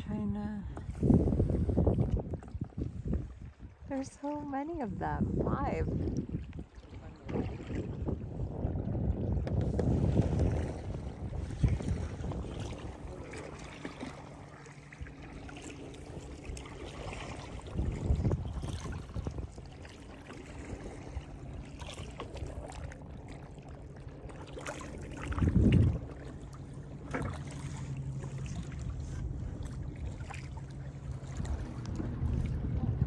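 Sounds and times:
water noise: 0.0 - 33.0
low rumbles: 7.5 - 33.0
steady low hum: 9.8 - 33.0.

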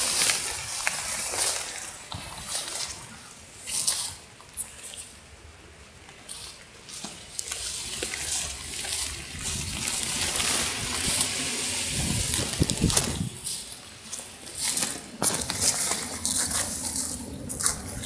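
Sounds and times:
dry grass rustling against phone: 6.1 - 18.0.

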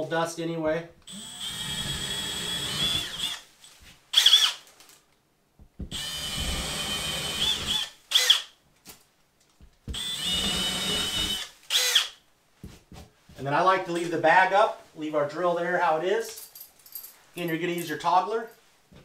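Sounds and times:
electric drill whining: 1.1 - 3.4, 5.9 - 8.5, 9.9 - 12.2.

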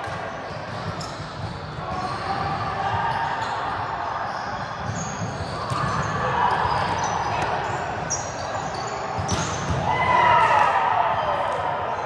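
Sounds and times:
balls being struck: 9.2 - 10.5.

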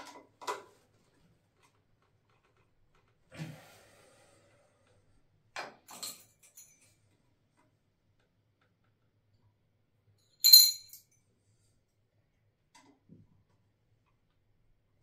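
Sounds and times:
sharp clack with ring: 10.4 - 11.0.

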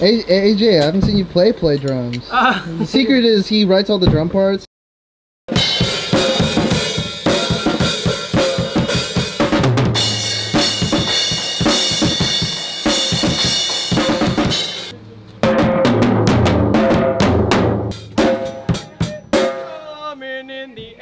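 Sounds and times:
drum kit played fast: 5.5 - 19.9.

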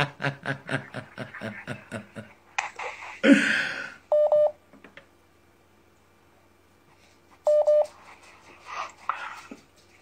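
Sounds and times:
woman laughing: 0.0 - 2.4
phone beeps: 4.1 - 4.6, 7.5 - 7.9.

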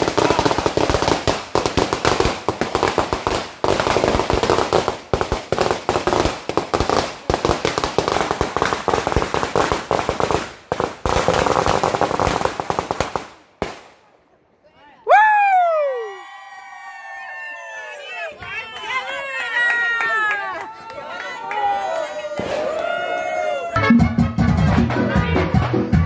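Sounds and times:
firecrackers banging: 0.0 - 14.1.

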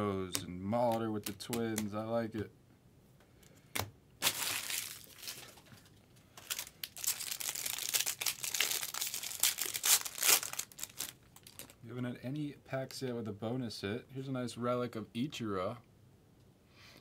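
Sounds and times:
wrapper crinkling and tearing: 4.2 - 11.8.

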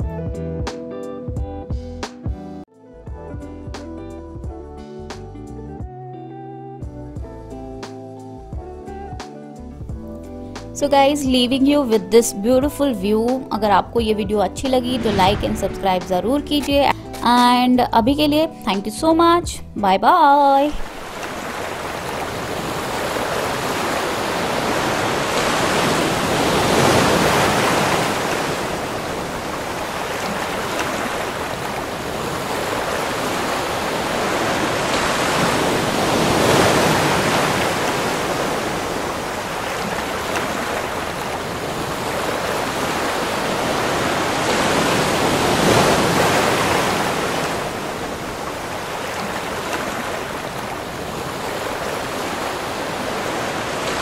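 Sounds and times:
ocean surf breaking: 14.6 - 17.2, 20.6 - 54.0.

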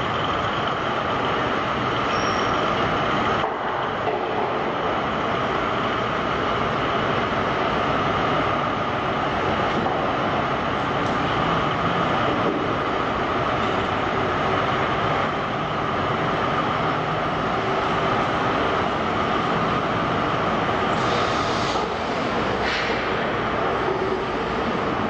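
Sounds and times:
diesel truck engine running: 0.0 - 25.0
short burst of hiss: 21.0 - 21.9.

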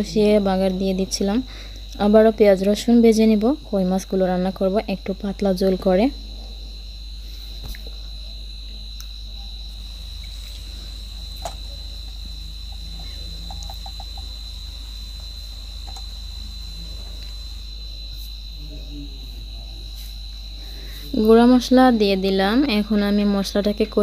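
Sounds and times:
high-pitched insect trill: 0.0 - 24.0
low steady hum: 0.0 - 24.0
faint clicks: 15.8 - 16.1.

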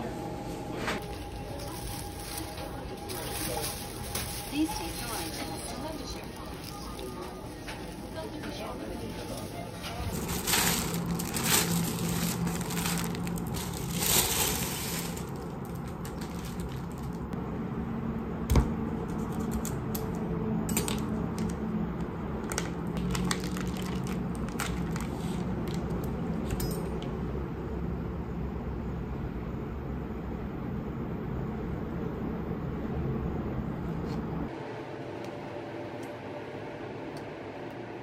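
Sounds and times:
plastic bag rustling: 1.0 - 8.3, 9.1 - 17.3, 23.0 - 25.7.

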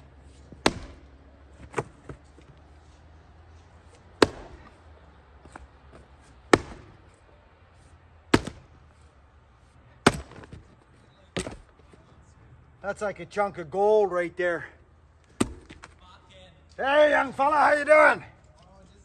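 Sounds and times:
axe chopping wood: 0.4 - 2.4, 3.9 - 4.8, 5.4 - 7.1, 8.3 - 8.8, 10.0 - 10.8, 11.4 - 11.8, 15.3 - 16.0.

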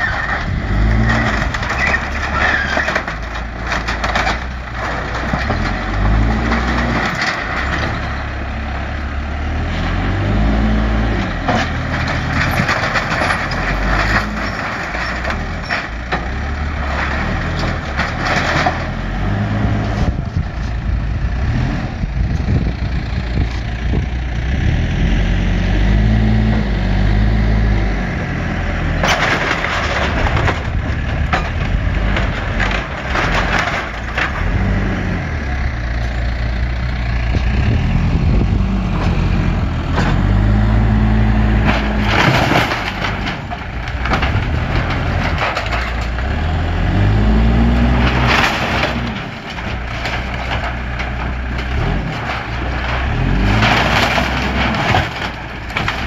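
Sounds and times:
diesel engine revving under load: 0.0 - 56.0
wood cracking and crunching: 0.0 - 56.0.

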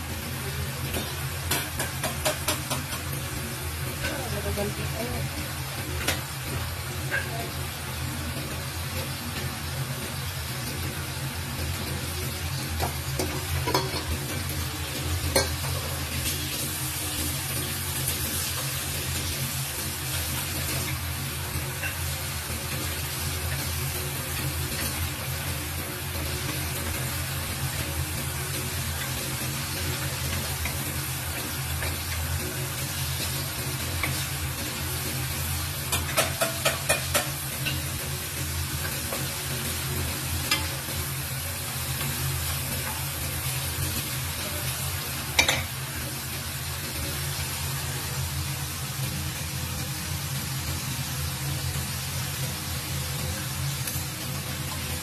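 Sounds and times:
meat sizzling in hot oil: 0.0 - 55.0
spatula knocking against pan: 1.5 - 3.1, 35.9 - 37.4.

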